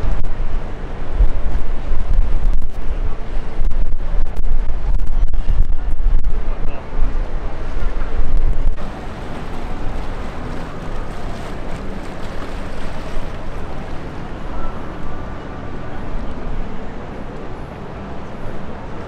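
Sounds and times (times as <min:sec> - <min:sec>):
wind buffeting microphone: 0:00.0 - 0:17.1
outdoor hubbub: 0:00.0 - 0:19.0
faint voices: 0:08.8 - 0:19.0.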